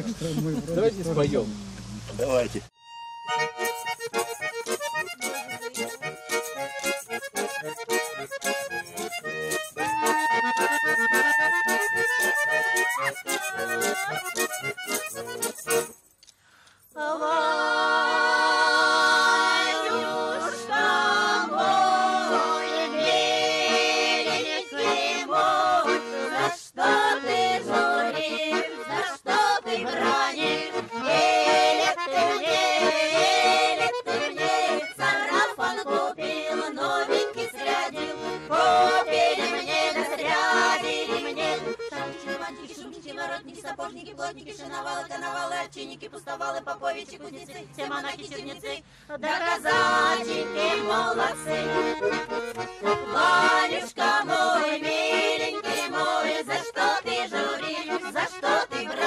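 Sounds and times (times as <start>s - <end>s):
button accordion folk tune: 2.7s - 16.1s, 17.2s - 59.0s
voices singing along: 9.8s - 14.8s, 17.0s - 59.0s.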